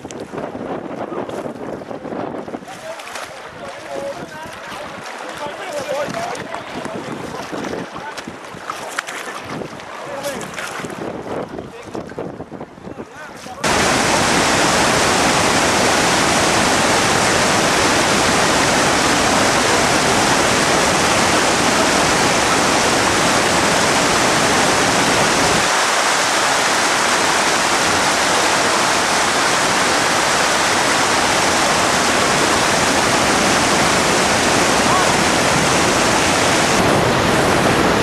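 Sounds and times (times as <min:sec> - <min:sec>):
waterfall rushing: 0:13.6 - 0:38.0.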